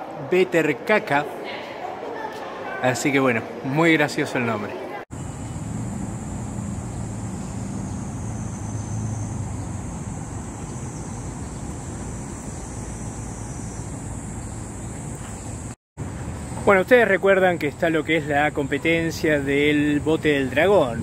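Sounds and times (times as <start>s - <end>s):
high-pitched whine: 5.1s - 14.5s
distant road traffic: 5.1s - 21.0s.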